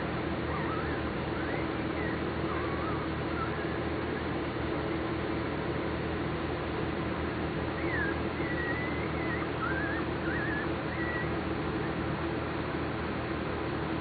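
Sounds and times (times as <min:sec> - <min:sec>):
background hiss and hum: 0:00.0 - 0:14.0
puppies squeaking: 0:00.2 - 0:05.0, 0:07.6 - 0:12.2.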